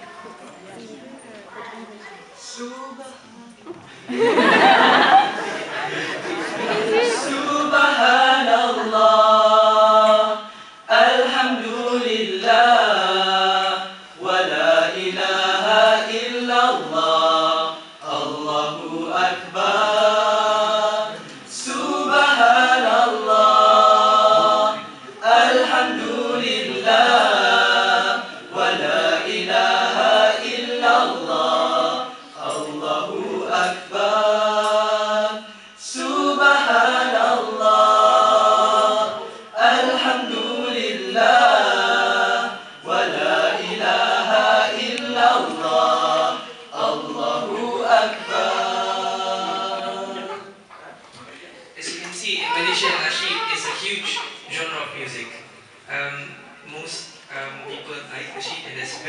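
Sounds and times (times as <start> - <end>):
men singing a cappella: 4.2 - 50.6.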